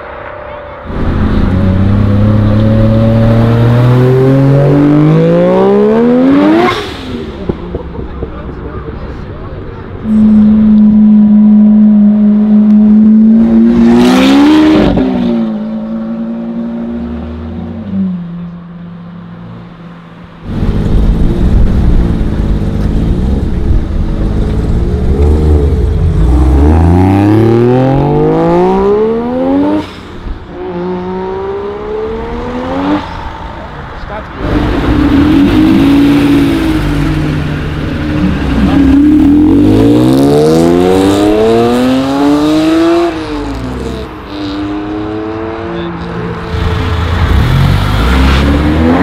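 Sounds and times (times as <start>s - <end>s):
car engine holding steady note: 0.0s - 13.8s.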